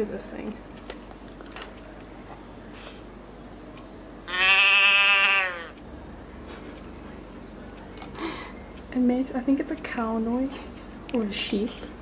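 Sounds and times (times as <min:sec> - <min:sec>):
moo box mooing call: 0:04.3 - 0:05.8.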